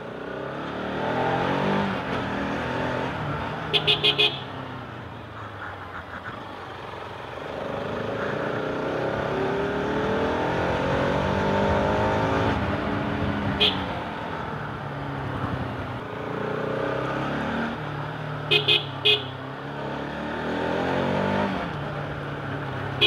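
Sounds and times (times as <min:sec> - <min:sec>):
motorcycle engine: 0:00.0 - 0:05.2, 0:06.8 - 0:23.0
horn beeping: 0:03.7 - 0:04.5, 0:13.6 - 0:13.9, 0:18.5 - 0:19.4.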